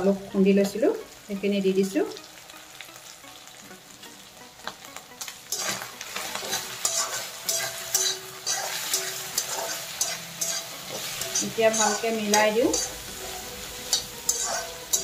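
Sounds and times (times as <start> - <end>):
food sizzling in oil: 0.0 - 15.0
wooden spatula scraping pan: 5.5 - 15.0.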